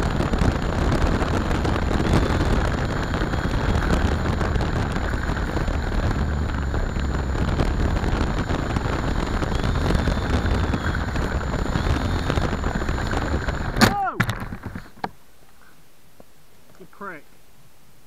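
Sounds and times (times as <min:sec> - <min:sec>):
model plane motor running: 0:00.0 - 0:13.9
prop wash buffeting microphone: 0:00.0 - 0:15.1
faint high whine: 0:00.0 - 0:18.0.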